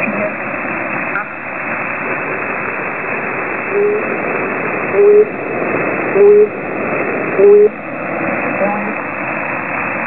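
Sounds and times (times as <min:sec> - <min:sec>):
radio static hiss: 0:00.0 - 0:10.0
short low radio beeps: 0:03.7 - 0:04.1, 0:06.2 - 0:06.6, 0:07.4 - 0:07.8.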